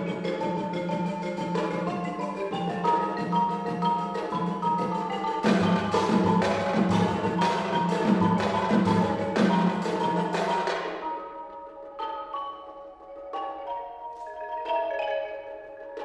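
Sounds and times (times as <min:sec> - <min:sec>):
loud percussion strikes: 0:00.0 - 0:11.5
marimba playing fast run: 0:00.0 - 0:16.0.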